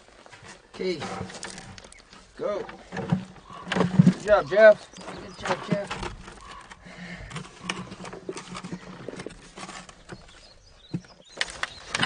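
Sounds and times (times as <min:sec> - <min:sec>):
stones dropped into plastic bucket: 0:00.4 - 0:06.7.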